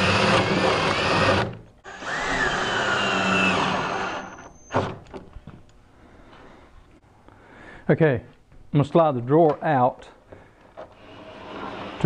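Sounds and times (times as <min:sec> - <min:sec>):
cordless drill whining: 0:00.0 - 0:04.9.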